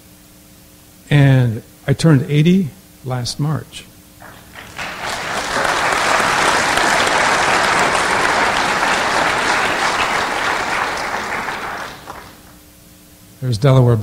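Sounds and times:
audience applauding: 0:04.2 - 0:12.6.

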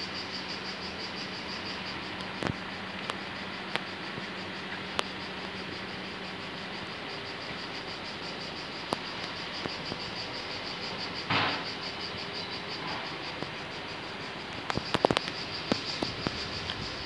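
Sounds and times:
cicadas buzzing: 0:00.0 - 0:17.0
sharp clicks: 0:14.6 - 0:16.8.

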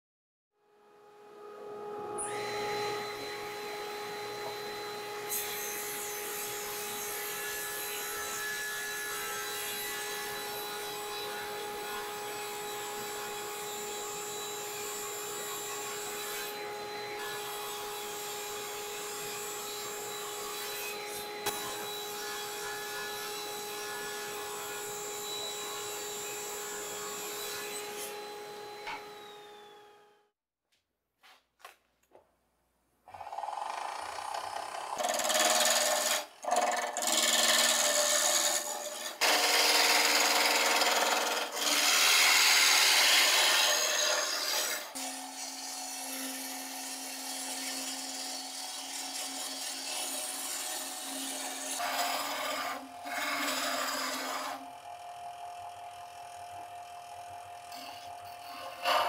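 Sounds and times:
table saw humming: 0:01.2 - 0:30.3, 0:33.1 - 0:59.0
saw cutting wood board: 0:02.0 - 0:29.9, 0:33.1 - 0:59.0.

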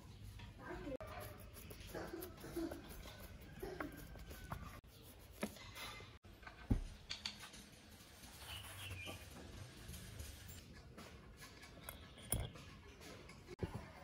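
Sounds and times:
screwdriver clicking and scraping: 0:11.5 - 0:12.6.

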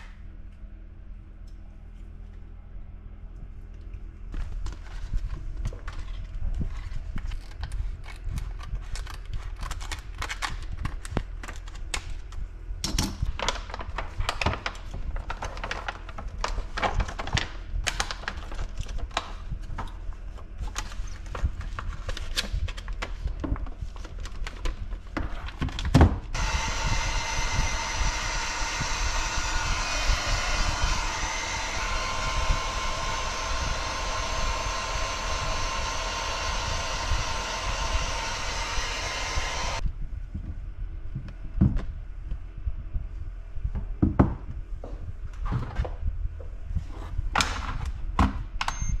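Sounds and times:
heat gun blowing hiss: 0:26.4 - 0:39.8.

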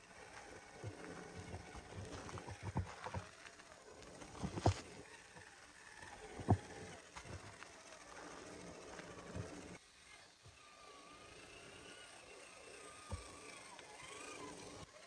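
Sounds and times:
faint motor whine: 0:00.0 - 0:15.0
wheels knocking on rock: 0:00.3 - 0:09.8.

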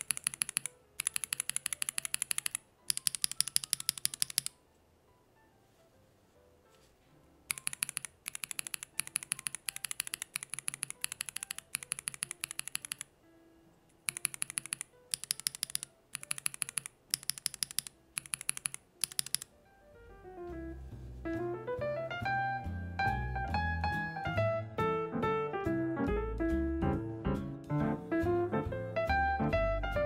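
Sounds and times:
mechanical keyboard clicking: 0:00.0 - 0:04.6, 0:07.5 - 0:13.1, 0:14.0 - 0:19.5
piano music: 0:02.7 - 0:07.9, 0:19.5 - 0:30.0.

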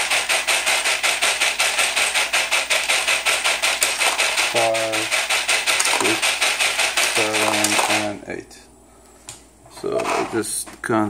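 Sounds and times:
screws rattling: 0:00.0 - 0:08.1
machine rapid even clicking: 0:00.0 - 0:08.2.

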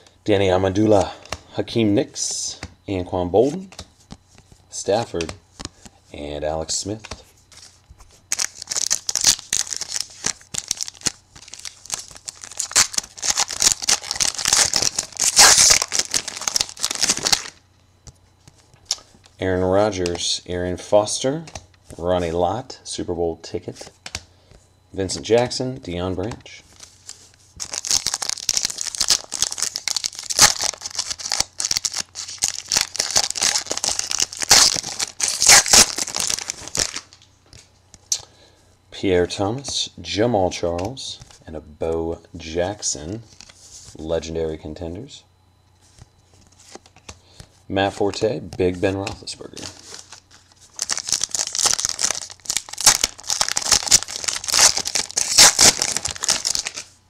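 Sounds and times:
foil wrapper tearing and crinkling: 0:08.3 - 0:17.6, 0:26.8 - 0:37.2, 0:49.6 - 0:56.9.

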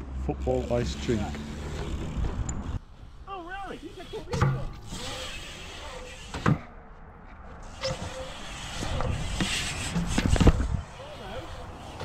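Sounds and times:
bike tyres rolling on concrete: 0:00.6 - 0:02.8, 0:07.6 - 0:12.0.

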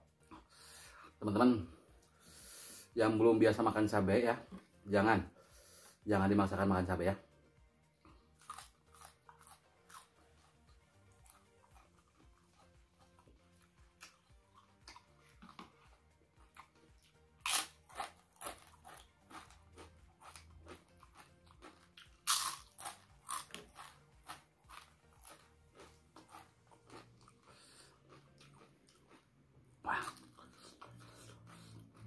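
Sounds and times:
crunching chews: 0:08.1 - 0:32.0
cracker bitten with crunch: 0:11.2 - 0:29.3.

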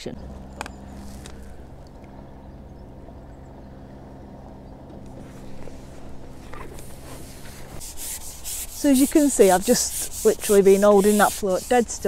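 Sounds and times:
distant motor drone: 0:00.0 - 0:12.0.

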